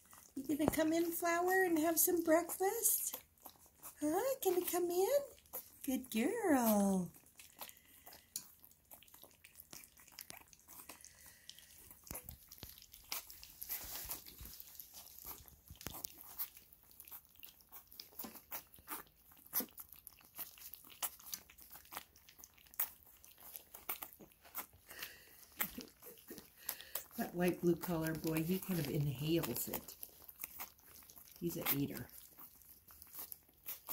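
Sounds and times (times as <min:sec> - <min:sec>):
puppies lapping and slurping: 0:00.0 - 0:33.9.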